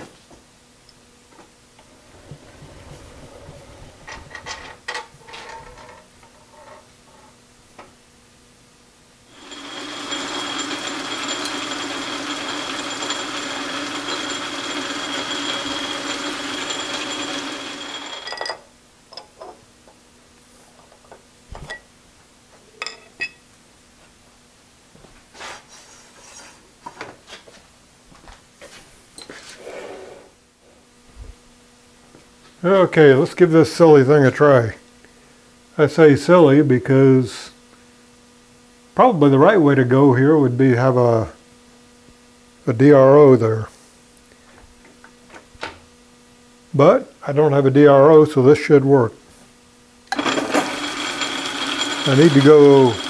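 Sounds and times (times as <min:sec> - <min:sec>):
machine running: 0:09.3 - 0:18.4, 0:50.1 - 0:53.0.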